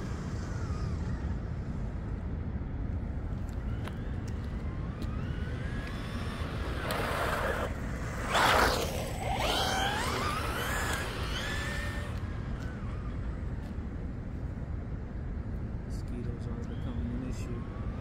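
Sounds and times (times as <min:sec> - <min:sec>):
electric motor whining: 0:03.8 - 0:13.1.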